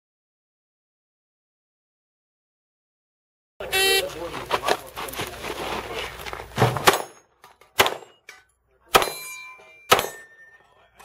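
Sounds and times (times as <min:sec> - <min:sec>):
pistol shots: 0:06.7 - 0:08.2, 0:08.9 - 0:09.2, 0:09.9 - 0:10.3
steel targets ringing: 0:07.9 - 0:10.9.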